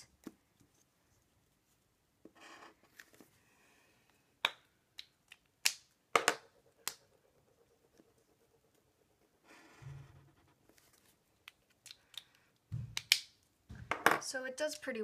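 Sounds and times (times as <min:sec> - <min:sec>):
plastic caps clicking and snapping: 0:04.4 - 0:07.0, 0:11.4 - 0:14.1.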